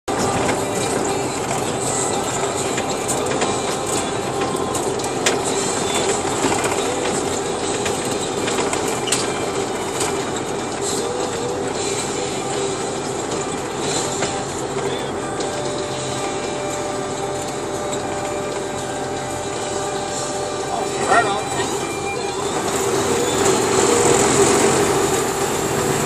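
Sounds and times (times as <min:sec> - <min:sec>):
truck engine and road noise: 0:00.0 - 0:26.0
cab rattles and clicks: 0:00.1 - 0:15.8.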